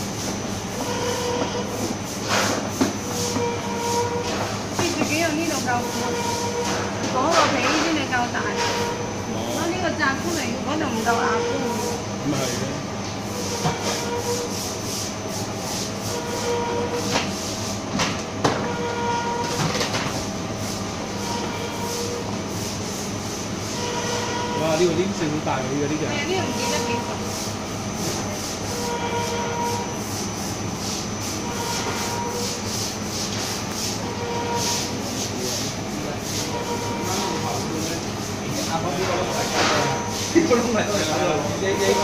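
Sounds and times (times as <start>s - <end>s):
machine mechanical drone: 18.7s - 42.0s.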